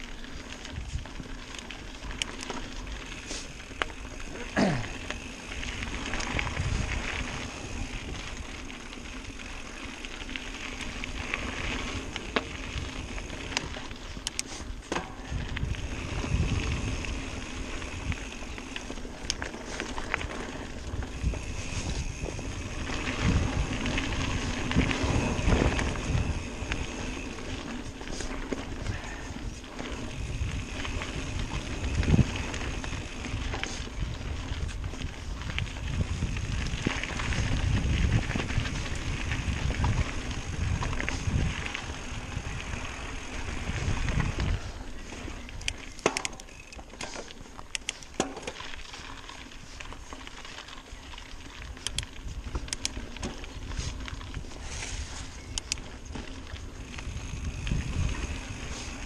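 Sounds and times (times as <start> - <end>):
bike rattles and knocks: 0.0 - 59.0
bike tyres rumbling on dirt: 0.0 - 59.0
sharp clicks and ticks: 1.5 - 2.6, 13.3 - 15.7, 18.0 - 20.4, 45.5 - 48.6, 51.7 - 53.5, 55.5 - 55.9.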